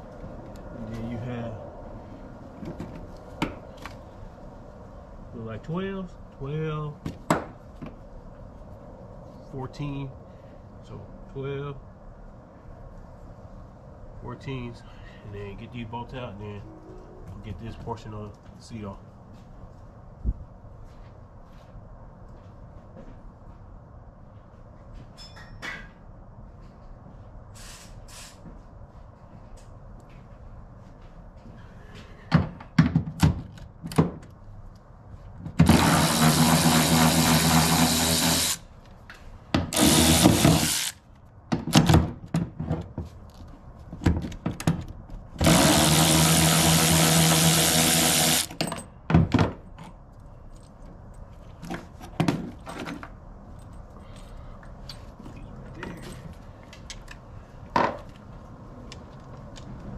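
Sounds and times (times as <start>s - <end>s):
knocks and clicks of handling tools: 31.9s - 34.4s, 39.0s - 45.5s, 48.5s - 53.8s, 54.9s - 58.3s
power tool spinning out bolts: 35.6s - 38.6s, 39.7s - 41.0s, 45.4s - 48.5s.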